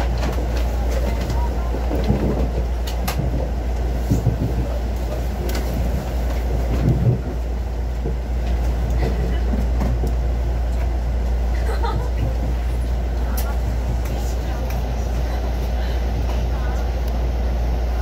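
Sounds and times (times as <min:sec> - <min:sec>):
train interior rumble and hum: 0:00.0 - 0:18.0.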